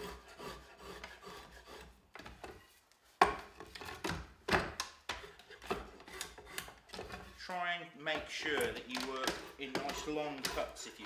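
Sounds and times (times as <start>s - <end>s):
draw knife scraping wood: 0.0s - 2.8s, 5.1s - 7.5s, 8.1s - 11.0s.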